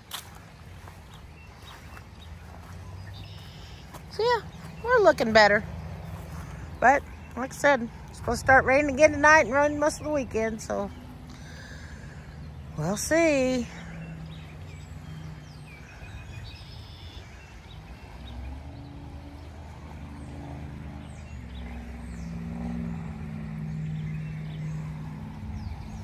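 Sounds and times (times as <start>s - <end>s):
vehicle engine running: 0.0s - 26.0s
faint bird chirps: 0.9s - 4.8s, 13.7s - 19.0s.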